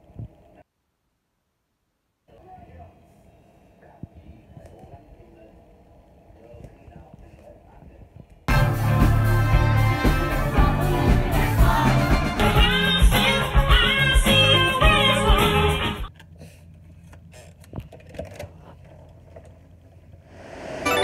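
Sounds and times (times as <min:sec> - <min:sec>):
band playing with singer: 0:08.5 - 0:16.0.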